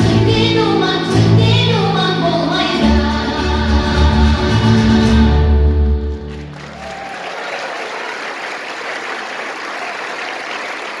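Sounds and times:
held chord of live music: 0.0s - 6.7s
audience applauding: 6.2s - 11.0s.

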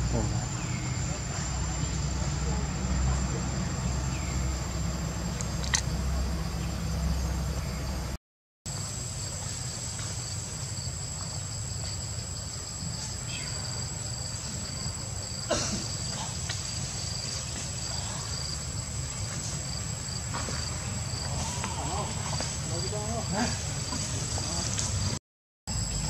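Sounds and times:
low hum: 0.0s - 8.2s
insects droning: 0.0s - 26.0s.

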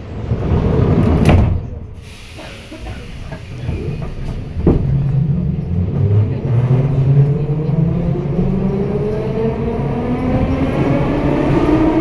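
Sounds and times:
train rumble: 0.0s - 12.0s
train clank: 0.3s - 6.2s
air hiss: 2.0s - 3.7s.

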